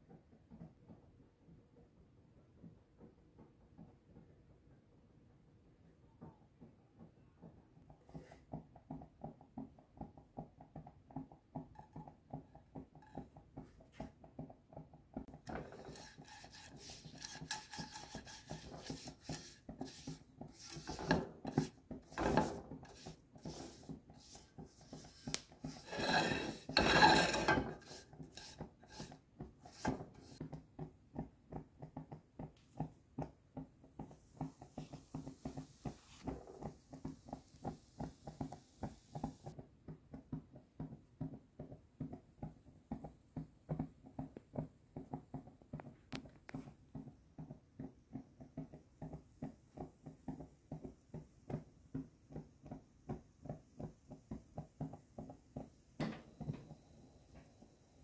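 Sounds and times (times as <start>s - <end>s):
brush rubbing frying pan: 15.4s - 30.4s.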